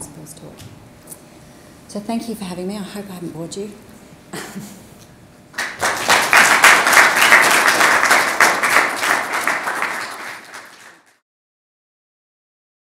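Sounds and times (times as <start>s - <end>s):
audience applauding: 5.6s - 11.2s.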